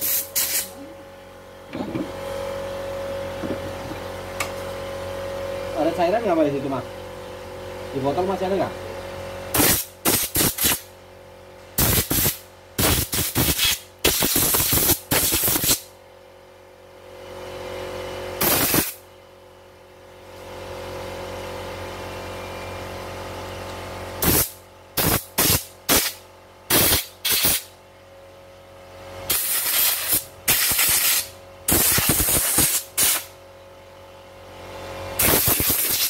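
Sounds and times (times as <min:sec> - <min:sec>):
compressed air hissing bursts: 0:00.0 - 0:00.7, 0:09.5 - 0:10.9, 0:11.8 - 0:15.9, 0:18.4 - 0:19.0, 0:24.2 - 0:27.7, 0:29.3 - 0:33.3, 0:35.2 - 0:36.0
steady hum: 0:00.0 - 0:16.6, 0:18.3 - 0:19.2.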